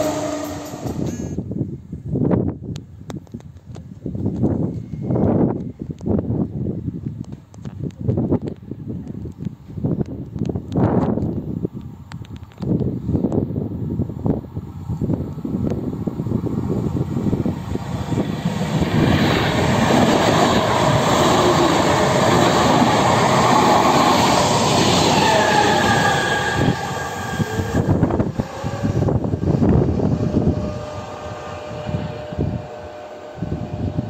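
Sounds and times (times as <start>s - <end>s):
high whining tone: 0.0s - 1.4s, 16.7s - 34.0s
train wheels rushing past: 0.0s - 1.4s, 15.6s - 34.0s.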